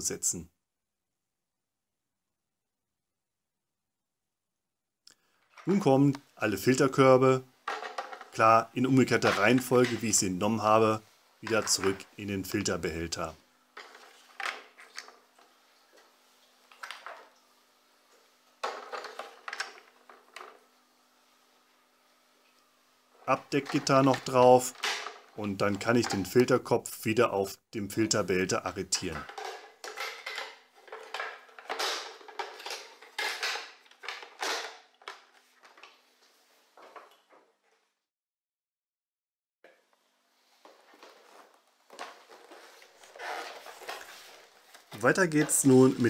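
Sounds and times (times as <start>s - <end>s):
plastic baskets clattering: 7.6s - 12.6s, 13.8s - 15.4s, 18.6s - 20.7s, 23.3s - 26.6s, 28.7s - 36.0s, 40.6s - 46.0s.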